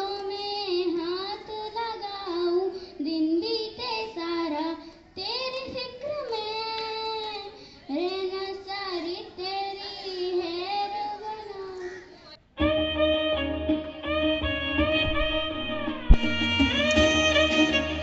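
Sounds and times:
girl singing into microphone: 0:00.0 - 0:12.3.

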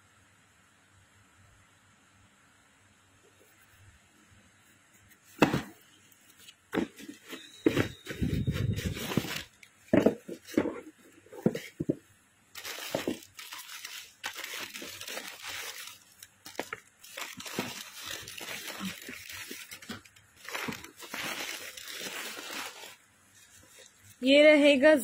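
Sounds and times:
box thud: 0:05.4 - 0:05.8, 0:06.7 - 0:12.0, 0:12.6 - 0:13.3
knocks on cardboard box: 0:05.4 - 0:05.8
tissue paper crinkling: 0:06.3 - 0:11.7, 0:12.5 - 0:24.2.

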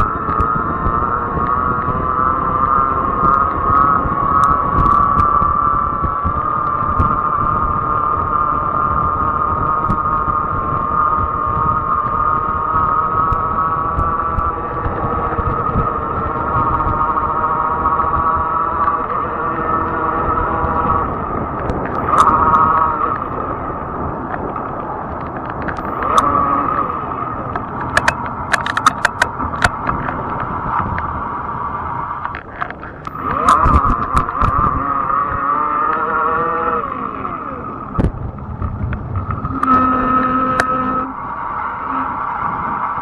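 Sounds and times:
sharp clicks and rattles: 0:00.0 - 0:41.1
tyre and road rumble: 0:00.0 - 0:43.0
whining electric motor: 0:00.0 - 0:43.0.

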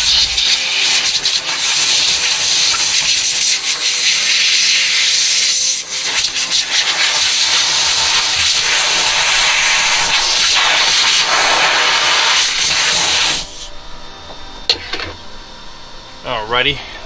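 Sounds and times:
compressed air blow gun hissing: 0:00.0 - 0:13.7.

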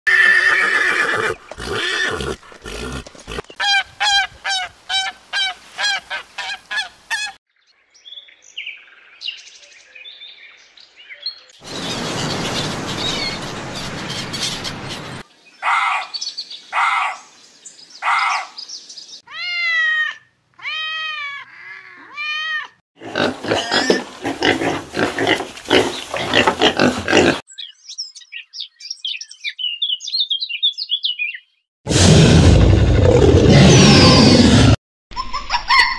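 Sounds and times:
horse calling: 0:00.1 - 0:07.4.

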